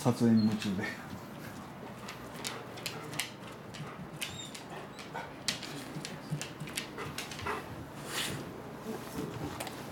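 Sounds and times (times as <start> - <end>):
dog claws clicking on wooden floor: 1.6 - 7.6.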